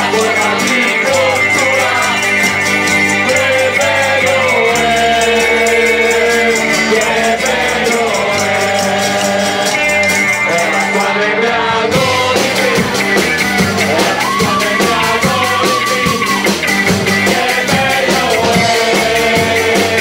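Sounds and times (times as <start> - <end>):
drum strokes: 0.0 - 20.0
rock band playing: 0.0 - 20.0
voices singing: 0.0 - 20.0.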